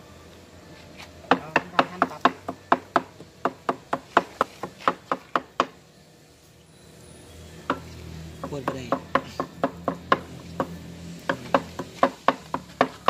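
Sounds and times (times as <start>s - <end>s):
cleaver chopping meat on block: 8.4s - 13.0s.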